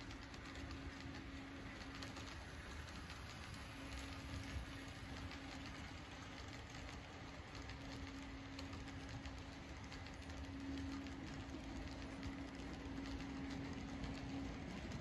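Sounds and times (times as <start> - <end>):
model train wheels clicking on track: 0.0 - 15.0
steady hum: 0.0 - 15.0.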